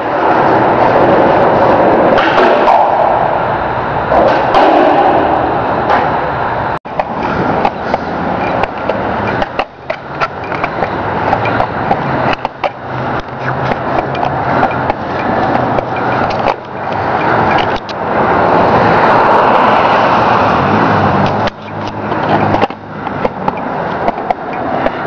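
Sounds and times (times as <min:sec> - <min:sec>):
skateboard wheels rolling on concrete: 0:00.0 - 0:25.0
skateboard deck clacking: 0:00.1 - 0:03.4, 0:06.9 - 0:18.0, 0:21.2 - 0:25.0.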